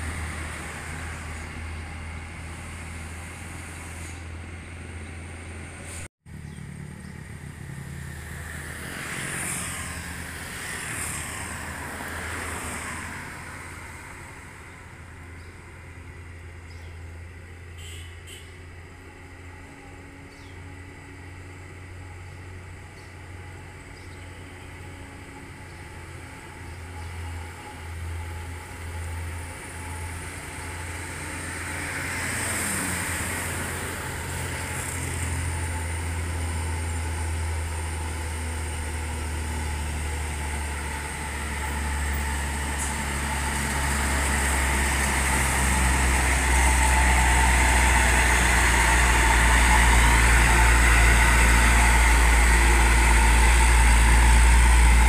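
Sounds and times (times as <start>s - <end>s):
truck diesel engine running: 24.3s - 55.0s.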